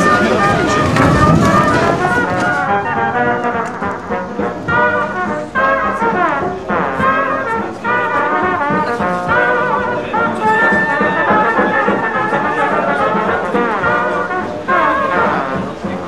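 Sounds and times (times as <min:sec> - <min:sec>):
brass music playing a melody: 0:00.0 - 0:16.0.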